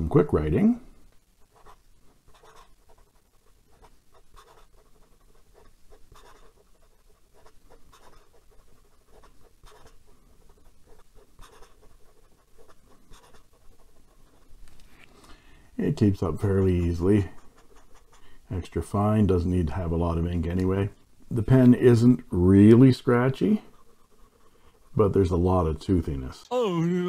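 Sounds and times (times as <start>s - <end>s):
fountain pen writing on paper: 1.5s - 14.5s, 16.3s - 18.3s, 23.6s - 25.0s.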